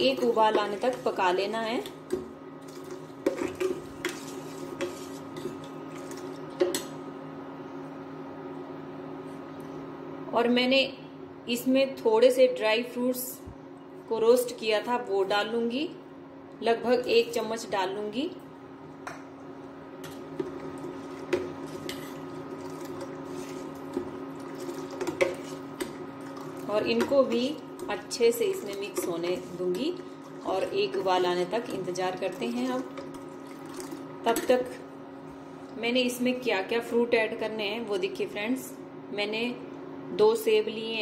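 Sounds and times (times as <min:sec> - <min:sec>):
induction cooktop humming: 0:00.0 - 0:41.0
ladle scraping and clinking in pan: 0:02.8 - 0:06.2
liquid squishing: 0:32.2 - 0:34.1.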